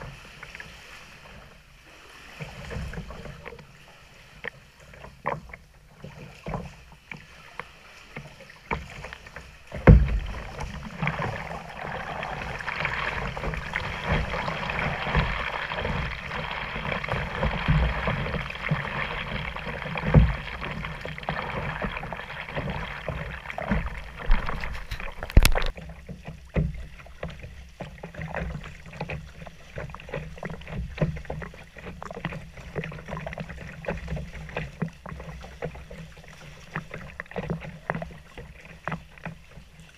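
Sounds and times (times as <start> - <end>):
paddle strokes splashing water: 0.0 - 39.9
rushing wash of water: 6.0 - 26.2.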